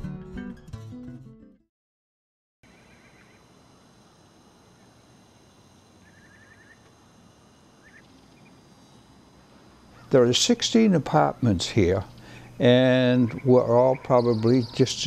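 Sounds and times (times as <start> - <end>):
small bird chirping: 2.7 - 3.6, 6.0 - 7.0, 7.7 - 8.8, 11.2 - 15.0
faint background hiss: 2.7 - 15.0.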